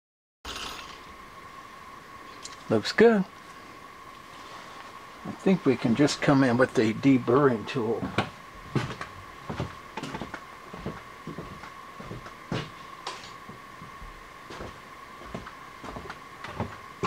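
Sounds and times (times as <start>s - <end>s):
steady high-pitched hum: 0.5s - 17.0s.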